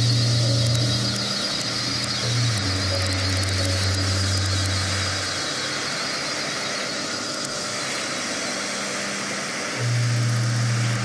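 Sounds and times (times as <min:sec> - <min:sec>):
low bass drone: 0:00.0 - 0:06.0
dense electronic hiss: 0:00.0 - 0:11.0.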